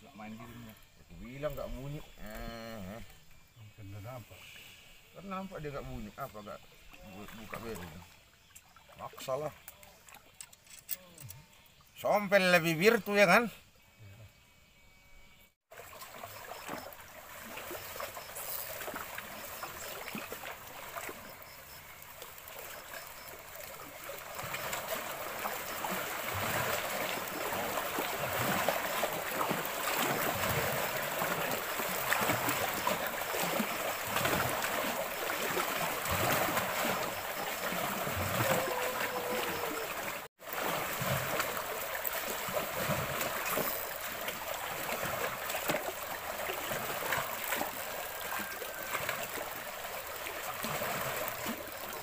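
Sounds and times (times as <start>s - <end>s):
lake water lapping on rocks: 15.7s - 52.0s.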